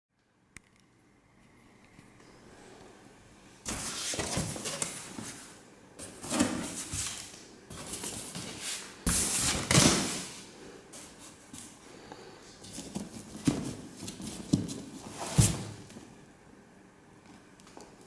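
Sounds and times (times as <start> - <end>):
cardboard rustling and scraping: 3.7 - 10.4, 12.6 - 15.9.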